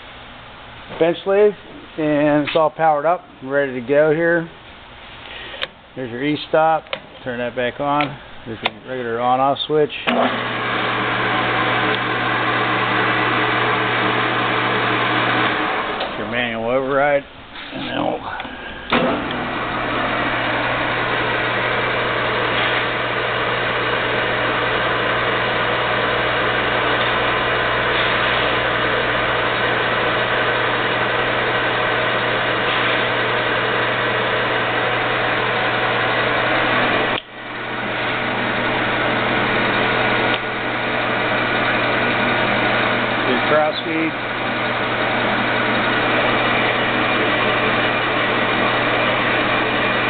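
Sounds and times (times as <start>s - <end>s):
lathe running: 10.0s - 16.8s, 18.0s - 50.0s.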